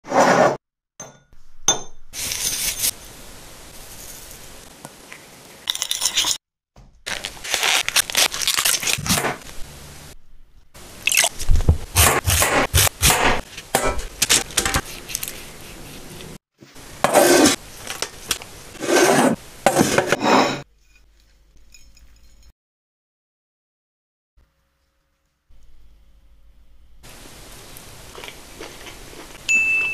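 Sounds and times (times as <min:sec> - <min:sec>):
knife crunching through cauliflower: 0:07.1 - 0:09.4
dishes scraping and clinking: 0:18.8 - 0:22.5.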